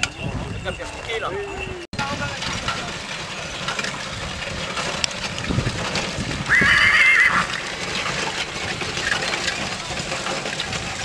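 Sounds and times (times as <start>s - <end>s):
horse whinnying: 6.5s - 7.6s.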